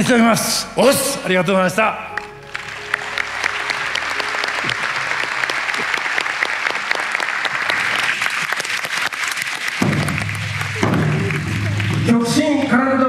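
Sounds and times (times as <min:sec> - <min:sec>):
audience applauding: 0:02.1 - 0:12.7.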